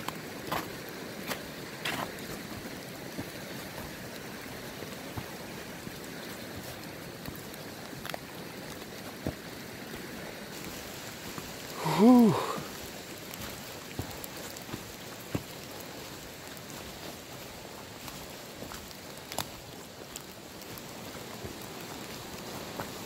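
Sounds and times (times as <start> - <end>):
faint ticks and snaps: 7.2 - 9.0, 18.0 - 20.8
footsteps in dry leaves: 10.5 - 23.0
person making wordless voice sound: 11.7 - 12.7.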